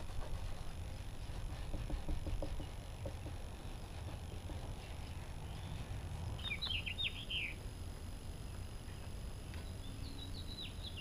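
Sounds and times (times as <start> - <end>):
songbird chirping: 4.3 - 7.7, 8.4 - 11.0.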